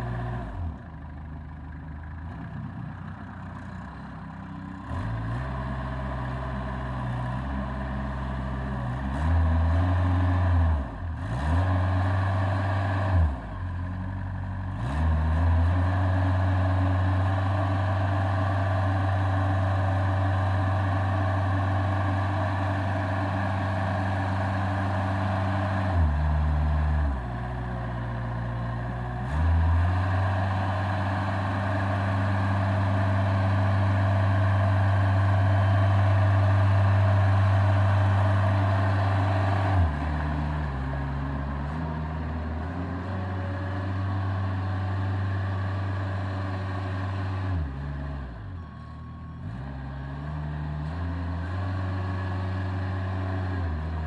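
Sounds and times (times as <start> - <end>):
backhoe engine revving: 3.4 - 54.0.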